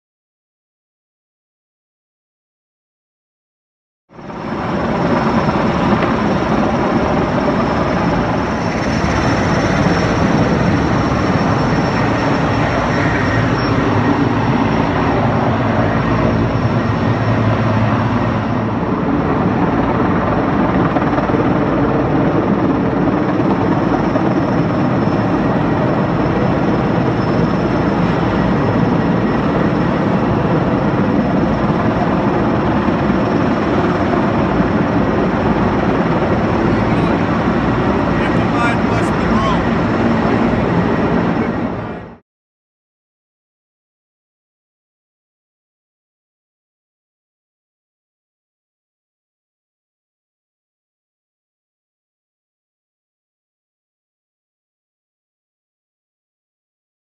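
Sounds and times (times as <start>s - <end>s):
helicopter rotor and engine: 4.1s - 42.2s.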